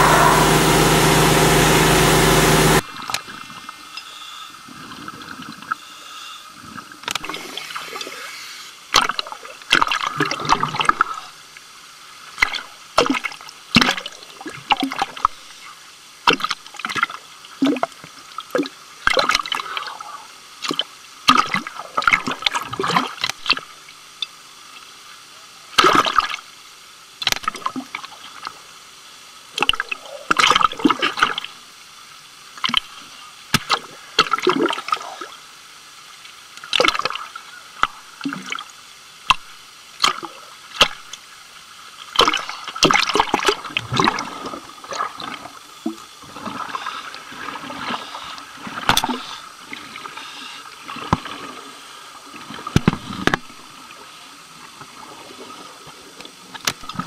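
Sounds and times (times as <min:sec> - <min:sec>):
seawater sloshing and gurgling: 0:42.2 - 0:53.6.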